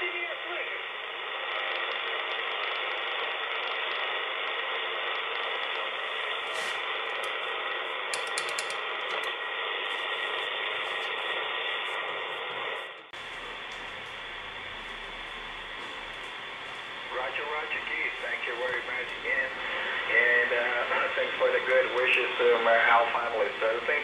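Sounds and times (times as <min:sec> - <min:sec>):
radio hissing with band noise: 0:00.0 - 0:08.1, 0:08.8 - 0:24.0
low hum: 0:00.7 - 0:24.0
steady radio whistle: 0:17.0 - 0:24.0.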